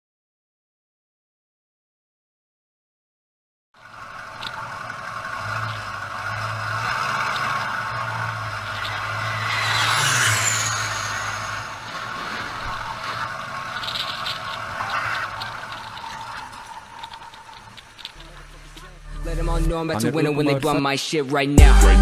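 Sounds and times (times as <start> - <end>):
aircraft engine whine: 3.8 - 19.4.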